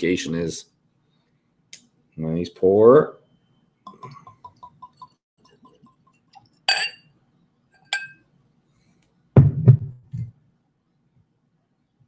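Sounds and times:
glass clinks: 6.7 - 7.1, 7.8 - 8.2.

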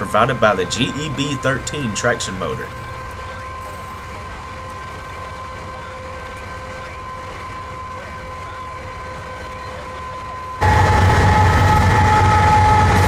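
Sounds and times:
locomotive rumbling with whine: 0.0 - 13.0.

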